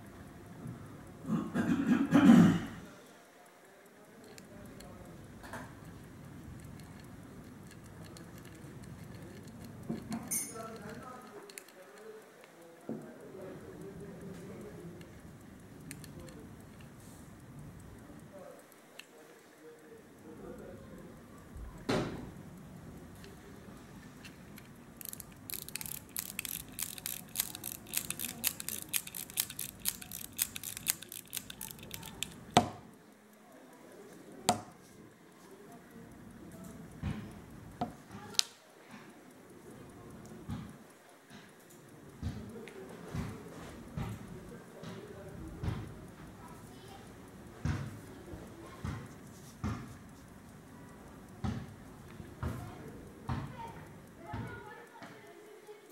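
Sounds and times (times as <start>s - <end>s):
pocket watch ticking: 3.8s - 34.8s, 35.4s - 55.9s
watch winding ratchet clicks: 4.2s - 12.8s, 13.8s - 18.8s, 24.2s - 32.8s
rubbing and handling noise: 24.0s - 32.6s.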